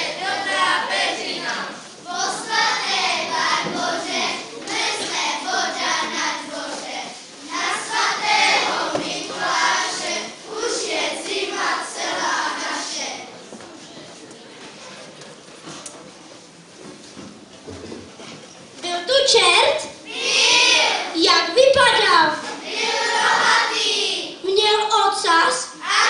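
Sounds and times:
children singing together: 0.0 - 13.4, 20.0 - 21.2, 22.4 - 24.4, 25.8 - 26.0.

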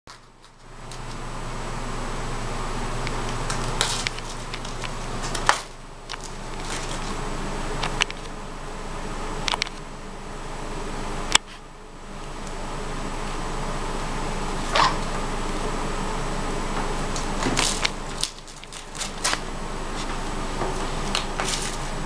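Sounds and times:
steady hum: 0.1 - 22.0
sharp paper snaps: 3.4 - 7.2, 17.2 - 19.4
newspaper crinkling and tearing: 3.5 - 7.2, 17.2 - 19.4, 21.0 - 22.0.

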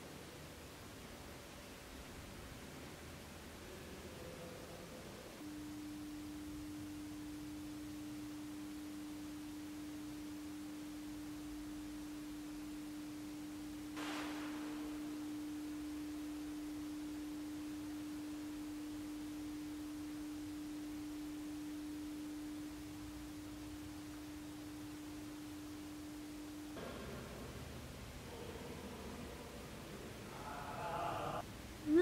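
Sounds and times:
steady pure tone: 3.4 - 32.0
fainter lower tone: 5.4 - 26.8.

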